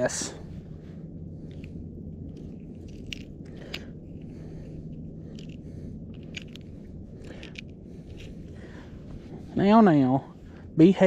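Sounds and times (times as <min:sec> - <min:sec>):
steady low rumble: 0:00.0 - 0:11.0
soft clicks and crackles of handling: 0:01.4 - 0:08.8.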